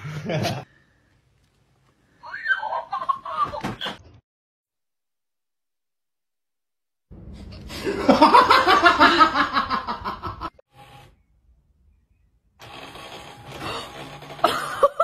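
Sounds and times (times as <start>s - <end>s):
person laughing: 0.0s - 0.6s, 7.5s - 10.5s, 13.6s - 15.0s.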